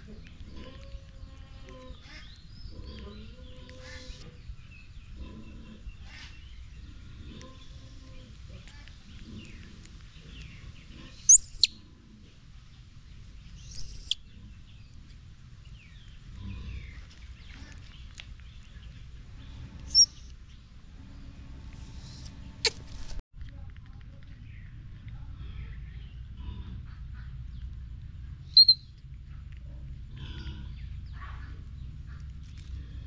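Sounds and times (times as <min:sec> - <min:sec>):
outdoor background: 0:00.0 - 0:33.0
infant monkey squealing: 0:11.3 - 0:11.7, 0:13.8 - 0:14.2, 0:28.6 - 0:28.8
short squeak: 0:28.6 - 0:28.8.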